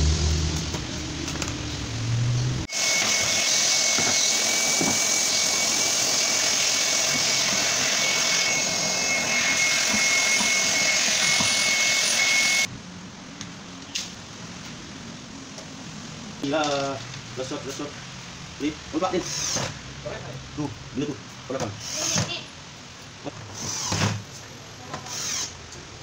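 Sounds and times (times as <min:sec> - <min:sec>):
machine running with high whine: 0:00.0 - 0:12.7.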